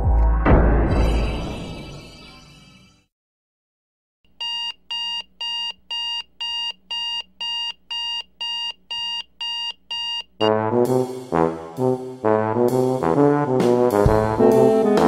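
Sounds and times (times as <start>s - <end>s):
phone alarm beeping: 4.4s - 10.4s
brass music: 10.4s - 15.0s.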